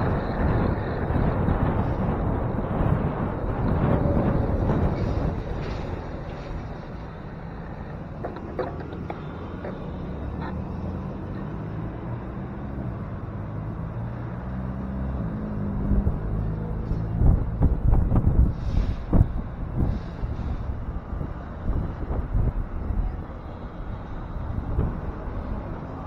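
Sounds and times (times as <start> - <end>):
wind buffeting the microphone: 0.0 - 10.4, 15.0 - 26.0
cars passing: 0.0 - 26.0.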